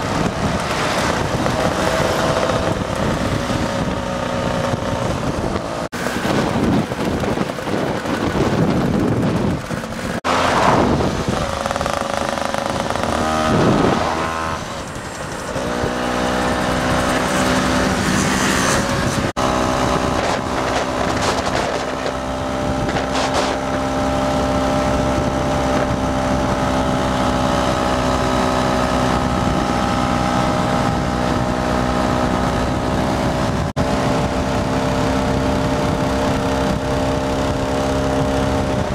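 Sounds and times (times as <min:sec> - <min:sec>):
scooter engines running: 0:00.0 - 0:38.9
steady engine drone: 0:00.0 - 0:38.9
wind buffeting microphone: 0:00.0 - 0:38.9.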